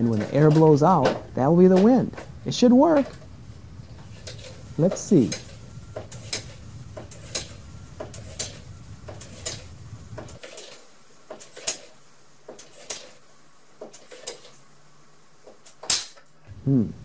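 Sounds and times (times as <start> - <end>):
hand air pump strokes: 4.0 - 13.2.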